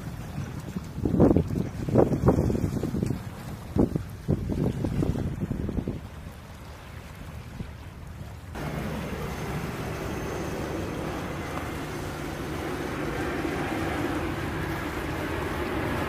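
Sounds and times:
ship engines rumbling: 8.6 - 16.0.

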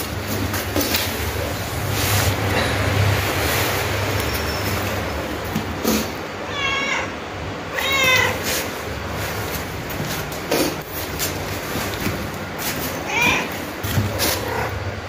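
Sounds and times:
steady background hiss: 0.0 - 15.0
cat meowing: 6.4 - 8.6, 13.0 - 13.6.

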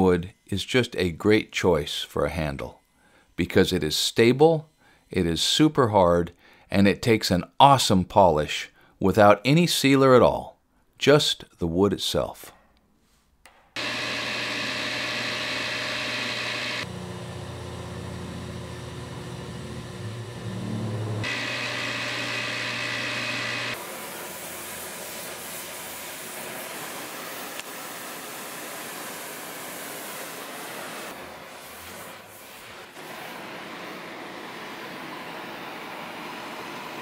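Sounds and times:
drill bit cutting wood: 13.8 - 23.9
drill press motor humming: 13.8 - 23.9.

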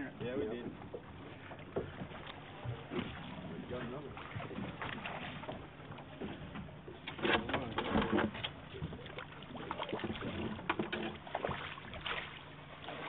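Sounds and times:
water noise: 0.0 - 13.0
fish thrashing and splashing: 7.2 - 13.0.

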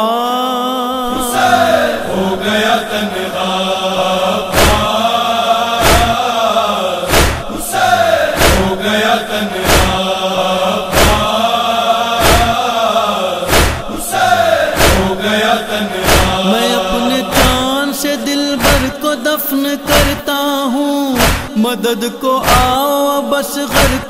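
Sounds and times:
voices chanting a lament: 0.0 - 24.0
chest-beating strikes: 4.5 - 5.0, 5.8 - 6.2, 7.1 - 7.6, 9.6 - 10.0.

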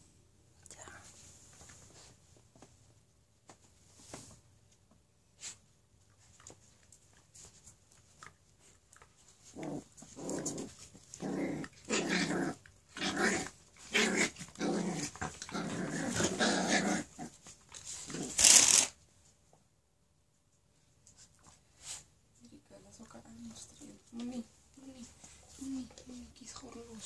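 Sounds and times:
dogs growling: 9.4 - 17.4.

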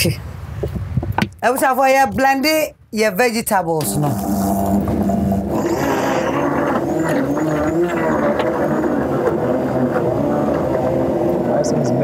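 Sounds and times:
blender motor humming: 4.0 - 12.0.

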